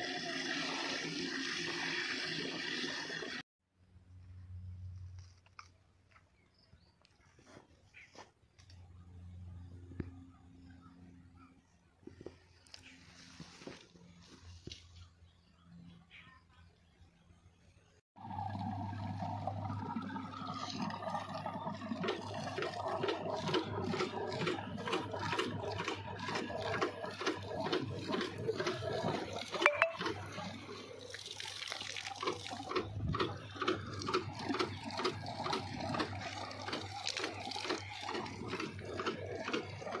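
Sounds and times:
water gushing from a pipe: 0.0s - 3.4s, 18.2s - 40.0s
water spurting from a leaking valve: 0.0s - 3.4s, 18.2s - 40.0s.

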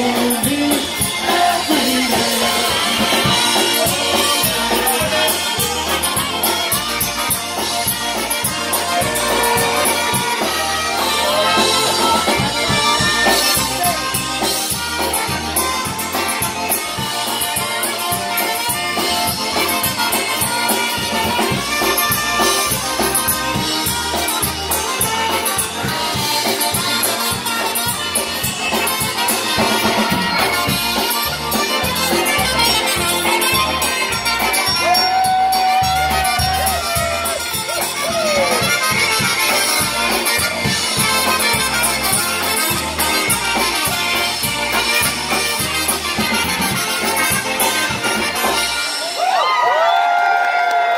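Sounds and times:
polka band playing: 0.0s - 50.9s
horn long note with slide: 8.2s - 15.4s.

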